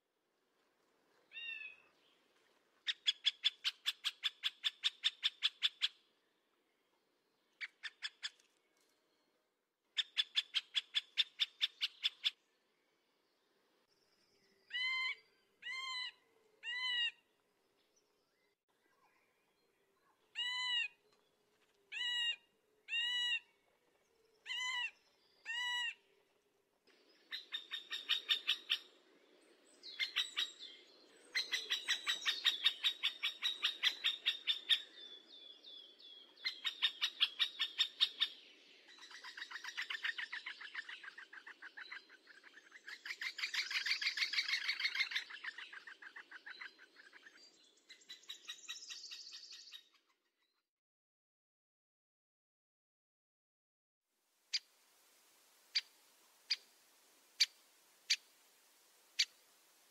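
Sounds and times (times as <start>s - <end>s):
woodpecker calls: 2.9s - 6.0s, 7.6s - 8.5s, 10.0s - 12.4s, 20.3s - 21.0s, 24.4s - 26.0s, 27.2s - 29.0s, 29.8s - 35.2s, 36.2s - 50.2s.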